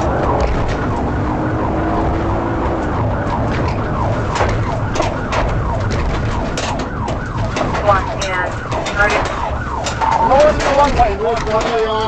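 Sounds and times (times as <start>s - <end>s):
car driving fast: 0.0s - 8.0s
police siren yelping: 0.0s - 12.0s.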